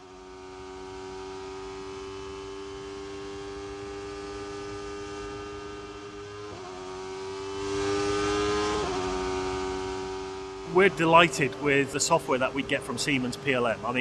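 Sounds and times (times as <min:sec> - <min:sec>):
racing car engine high pitch: 0:03.3 - 0:14.0.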